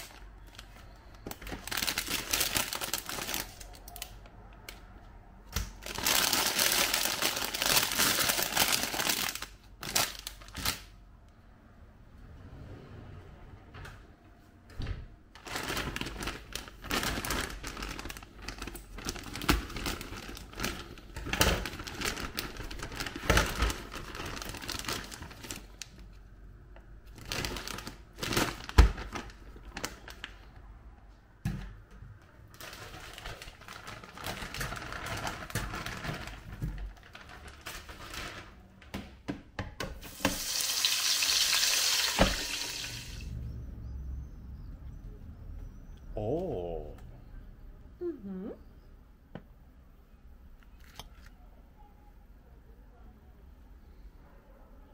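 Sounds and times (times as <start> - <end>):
plastic bag crinkling: 0.0 - 4.3, 5.6 - 10.9, 15.4 - 26.2, 27.0 - 30.6, 32.5 - 38.7.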